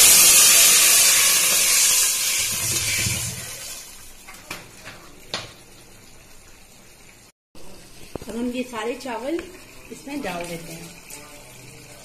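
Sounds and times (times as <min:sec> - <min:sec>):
water pouring into metal pot: 0:00.0 - 0:06.8, 0:07.9 - 0:12.0.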